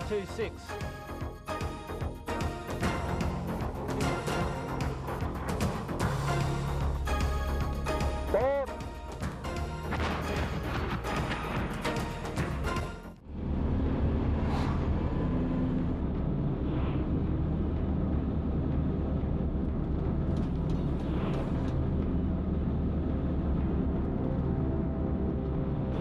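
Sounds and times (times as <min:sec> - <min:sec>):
truck engine running: 0:09.0 - 0:26.0.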